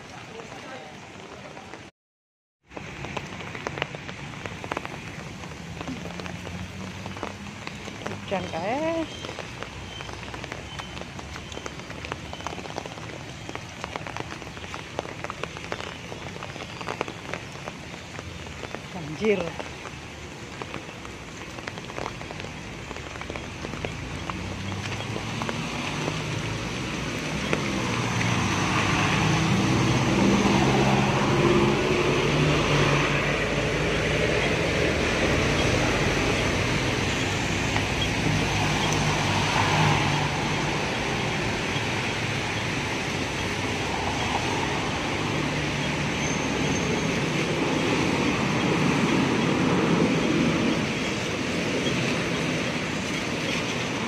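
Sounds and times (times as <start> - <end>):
rain falling: 0.0 - 1.9, 2.6 - 54.0
tyres hissing on wet road: 2.7 - 54.0
vehicle engines running: 2.8 - 54.0.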